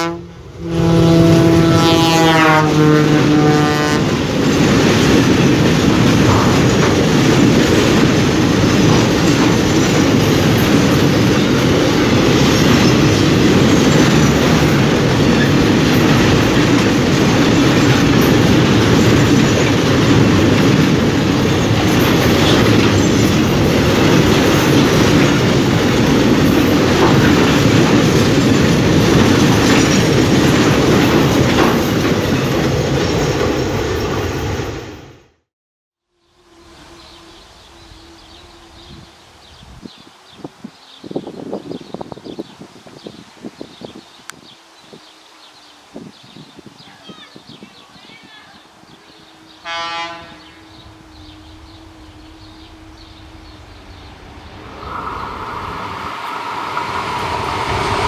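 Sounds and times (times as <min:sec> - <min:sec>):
train horn: 0:00.0 - 0:04.3, 0:36.1 - 0:39.4, 0:48.4 - 0:55.0
train cars rolling: 0:00.0 - 0:35.3, 0:44.9 - 0:58.0
wheels clicking over rail joints: 0:04.1 - 0:34.5.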